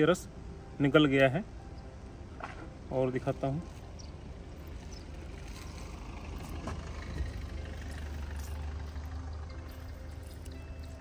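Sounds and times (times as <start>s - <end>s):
engine rumbling: 0.0s - 11.0s.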